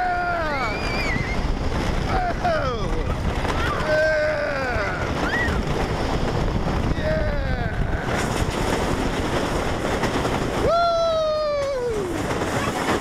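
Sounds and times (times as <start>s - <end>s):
person whooping: 0.0s - 1.4s, 3.8s - 5.6s, 10.6s - 12.2s
roller coaster rumbling on track: 0.0s - 13.0s
wind on microphone: 0.0s - 13.0s.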